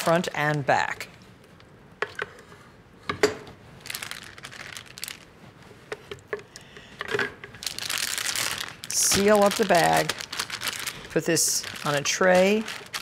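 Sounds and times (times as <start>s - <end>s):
plastic bag crinkling: 3.8s - 5.4s, 7.6s - 13.0s.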